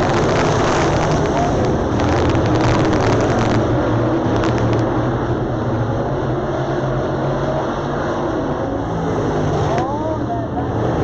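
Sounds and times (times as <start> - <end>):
race car engines droning: 0.0 - 11.0
short clicks: 4.3 - 4.9.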